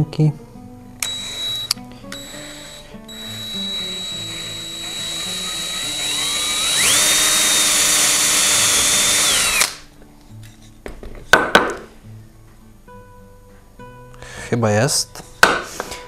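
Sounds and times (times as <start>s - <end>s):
quiet background music: 0.0s - 16.0s
electric drill whine: 1.0s - 9.8s.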